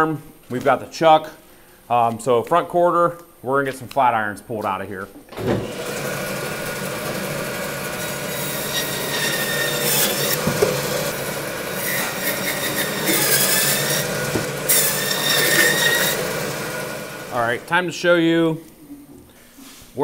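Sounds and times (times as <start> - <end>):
band saw running: 5.4 - 17.8
saw blade squealing: 8.0 - 11.2, 11.8 - 17.5.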